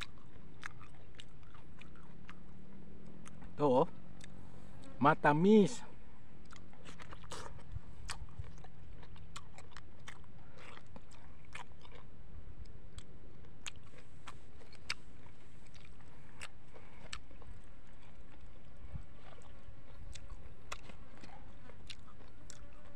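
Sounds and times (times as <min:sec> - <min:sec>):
wet chewing and sucking: 0:00.0 - 0:05.0, 0:06.4 - 0:22.9
mango being bitten: 0:00.0 - 0:05.2, 0:06.4 - 0:22.9.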